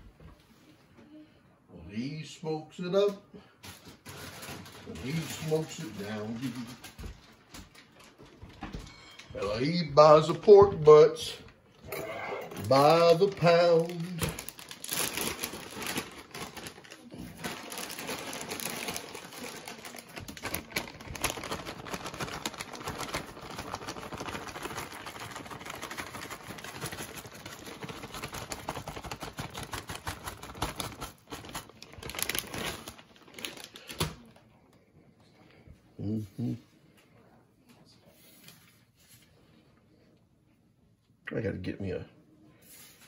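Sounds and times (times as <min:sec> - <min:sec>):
plastic bag crinkling: 0:03.6 - 0:34.6.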